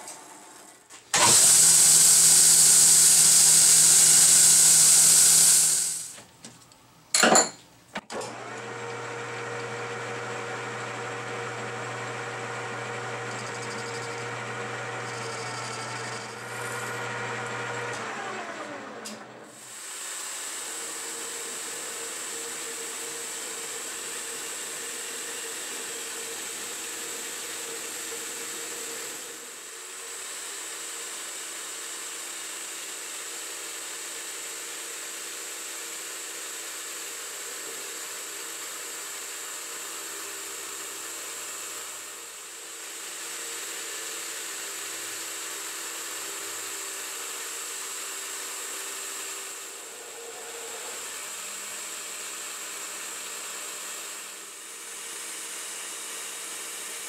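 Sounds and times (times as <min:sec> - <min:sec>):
belt grinder grinding metal: 0:01.2 - 0:06.1, 0:10.3 - 0:19.2
metal lathe running: 0:08.3 - 0:19.2, 0:48.7 - 0:52.9.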